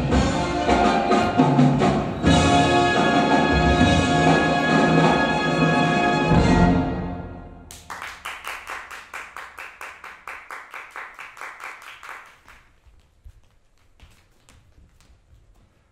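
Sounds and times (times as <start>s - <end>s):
hand clapping: 7.7s - 15.1s.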